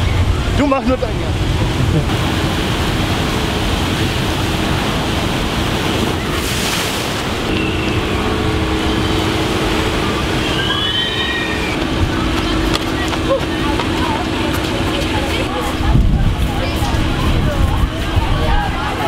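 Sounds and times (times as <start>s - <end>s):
water rushing and churning: 0.0s - 19.0s
raft splashing into pool: 1.4s - 12.3s
steady low hum: 7.0s - 19.0s.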